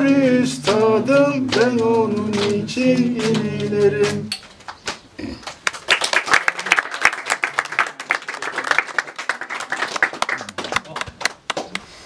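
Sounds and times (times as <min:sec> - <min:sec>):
small group applauding: 0:00.5 - 0:11.9.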